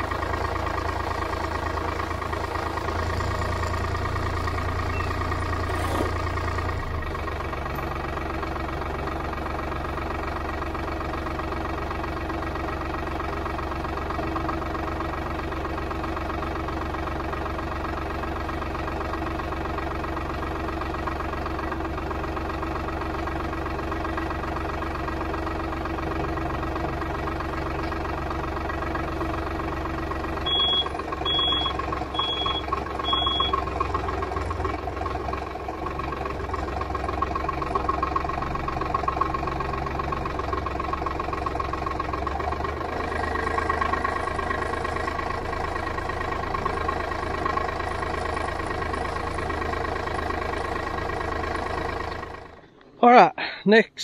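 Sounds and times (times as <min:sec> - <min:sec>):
tractor engine running: 0:00.0 - 0:54.0
short high beeps: 0:30.5 - 0:33.6.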